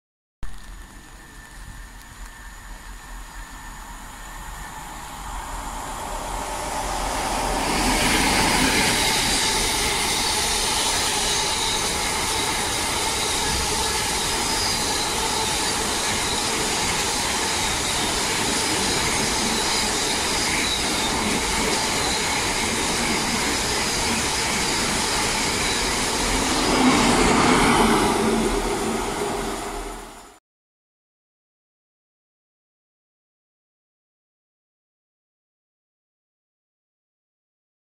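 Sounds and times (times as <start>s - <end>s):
diesel locomotive passing: 0.7s - 30.4s.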